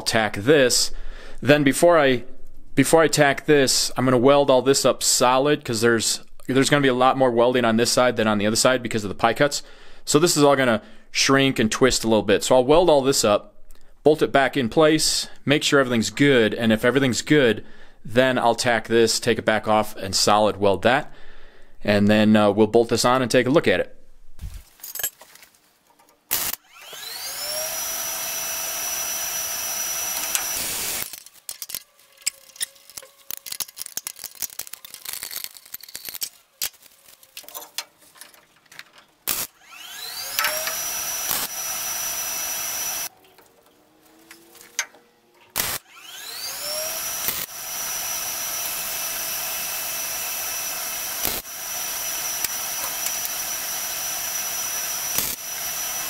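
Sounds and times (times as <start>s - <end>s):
parts clattering and clicking: 24.7s - 26.3s, 30.1s - 39.3s, 40.3s - 40.8s, 43.2s - 45.7s
electric grinder whining: 26.3s - 31.2s, 39.3s - 43.2s, 45.5s - 56.0s.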